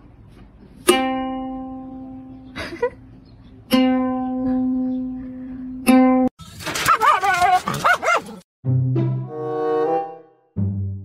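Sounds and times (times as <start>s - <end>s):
ukulele string plucked: 0.8s - 2.4s, 3.7s - 6.3s.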